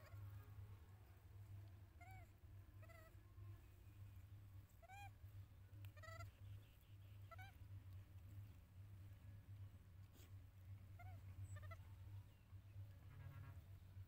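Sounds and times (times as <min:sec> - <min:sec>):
low steady hum: 0:00.0 - 0:14.0
baby monkey high calls: 0:02.0 - 0:03.2, 0:04.8 - 0:05.2, 0:05.9 - 0:06.4, 0:07.2 - 0:07.6, 0:11.0 - 0:11.9.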